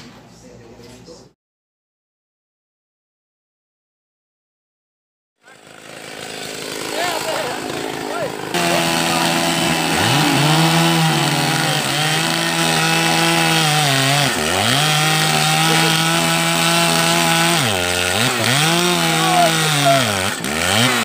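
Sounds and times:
chainsaw cutting and revving: 5.4s - 21.0s.

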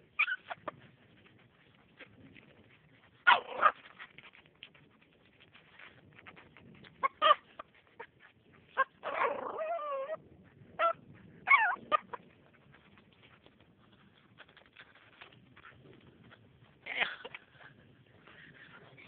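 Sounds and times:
dog whimpering and whining: 0.1s - 0.8s, 8.7s - 10.2s, 10.8s - 12.2s.

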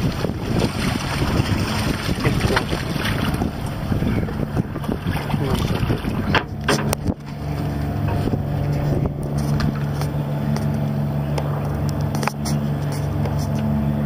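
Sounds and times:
boat engine humming: 0.0s - 14.0s
wind buffeting microphone: 0.0s - 14.0s
sharp knocks: 6.3s - 7.2s.

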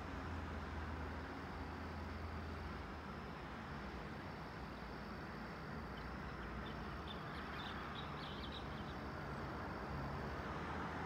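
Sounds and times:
small birds chirping: 6.0s - 9.0s.

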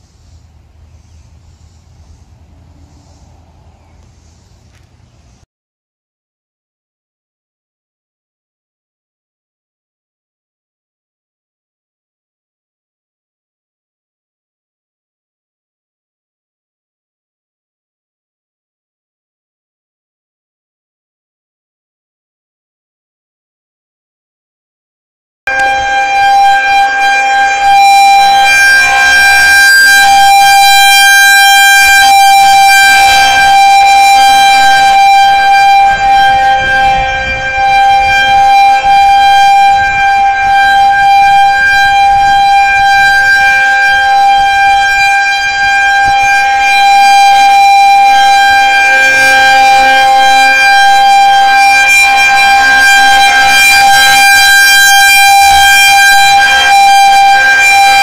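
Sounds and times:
outdoor warning siren: 0.0s - 5.2s, 25.5s - 58.0s.

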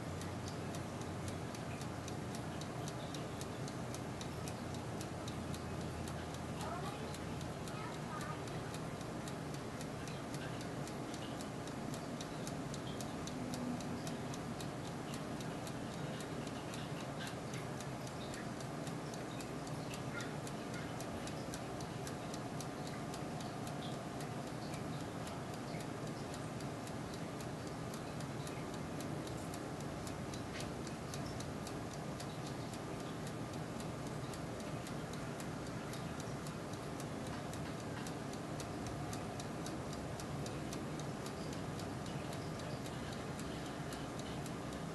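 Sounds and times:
oven fan whir: 0.0s - 44.9s
ticks and crackles of cooking: 0.0s - 44.9s.

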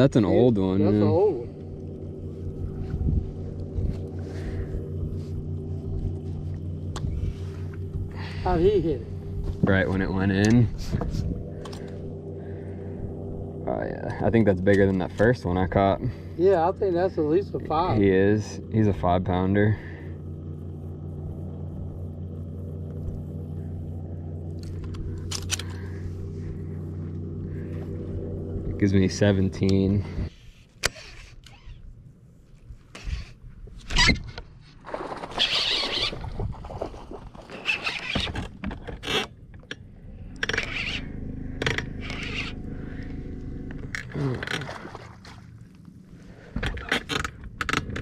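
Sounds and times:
boat motor humming: 0.0s - 48.0s
fishing rod and reel scraping: 24.6s - 28.0s, 29.6s - 31.9s, 32.5s - 36.7s, 37.3s - 39.4s, 40.3s - 45.7s.

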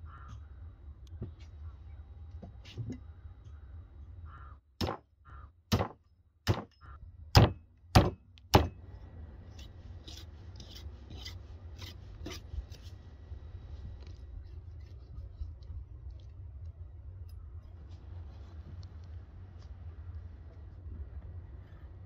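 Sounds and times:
axe chopping into wood: 4.8s - 5.0s, 5.7s - 6.7s, 7.4s - 8.8s
knife sawing through bone: 9.6s - 12.9s.

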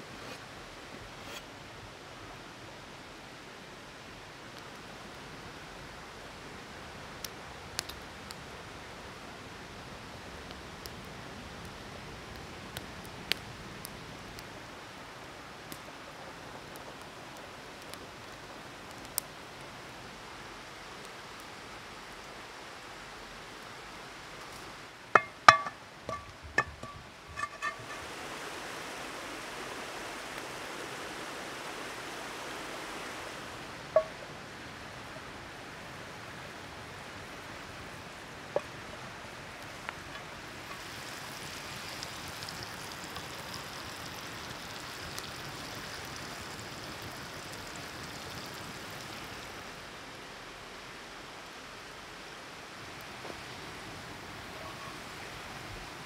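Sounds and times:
forest stream rushing: 0.0s - 56.0s
bread sizzling in a pan: 40.2s - 49.6s.

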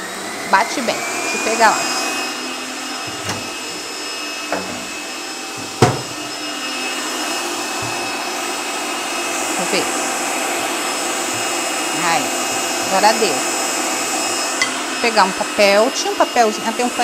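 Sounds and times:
stand mixer whining: 0.0s - 17.0s
sharp knock: 5.8s - 6.1s.

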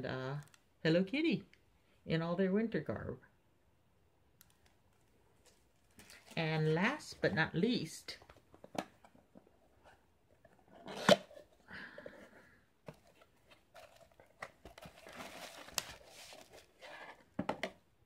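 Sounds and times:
cardboard box being opened: 12.9s - 17.3s
bubble wrap crinkling: 13.1s - 17.1s.

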